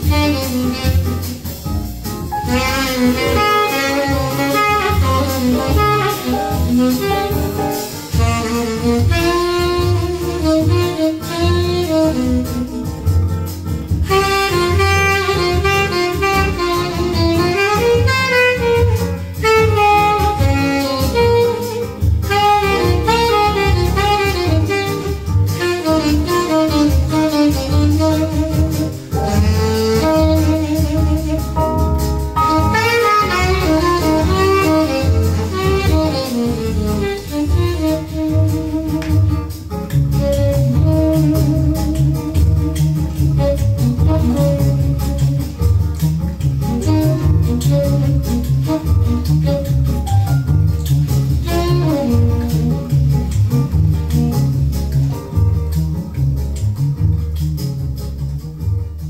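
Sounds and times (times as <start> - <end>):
bass line: 0.0 - 59.0
jazz over loudspeakers: 0.0 - 59.0
saxophone melody: 0.0 - 59.0.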